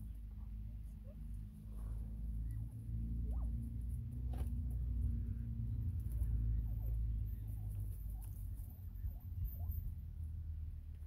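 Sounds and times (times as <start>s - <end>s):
low rumble: 0.0s - 11.0s.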